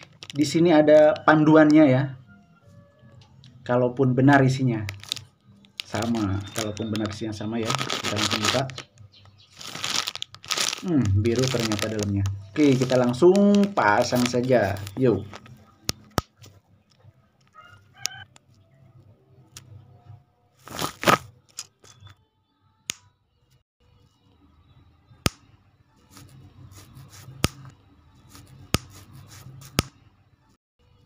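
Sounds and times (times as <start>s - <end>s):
rustle of handled pieces: 5.8s - 8.9s, 9.6s - 15.5s.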